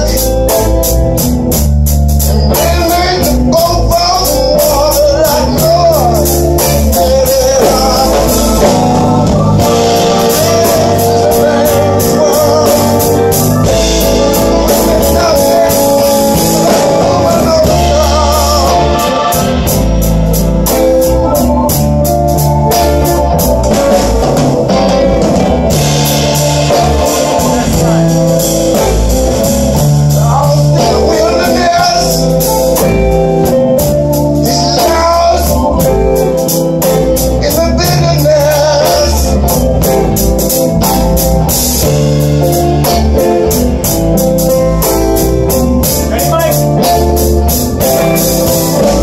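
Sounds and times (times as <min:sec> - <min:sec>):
man singing: 0:00.0 - 0:00.9, 0:02.3 - 0:20.4, 0:25.9 - 0:40.2, 0:45.8 - 0:47.1, 0:47.8 - 0:49.0
bass guitar: 0:00.0 - 0:49.0
drum kit: 0:00.0 - 0:49.0
electric guitars: 0:00.0 - 0:49.0.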